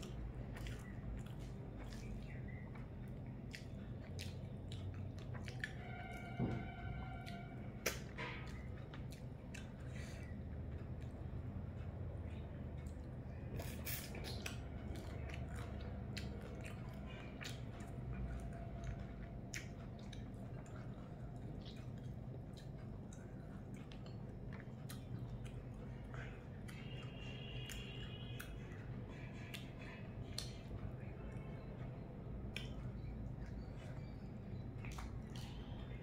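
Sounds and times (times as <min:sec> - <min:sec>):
person chewing and eating: 0:00.0 - 0:36.0
steady low hum: 0:00.0 - 0:36.0.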